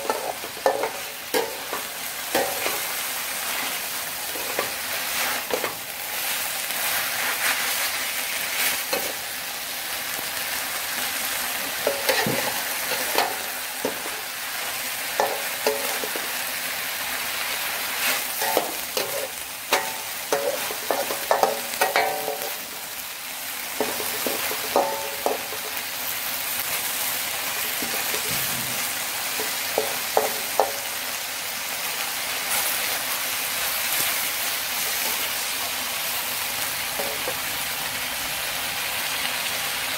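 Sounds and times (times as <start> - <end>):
spatula clanking against pan: 0.0 - 2.9, 11.8 - 14.3, 15.2 - 16.3, 18.4 - 22.7, 23.8 - 25.8, 27.5 - 30.9, 37.0 - 37.4
food sizzling in a wok: 0.0 - 39.9
metal spatula scraping a wok: 17.9 - 22.8.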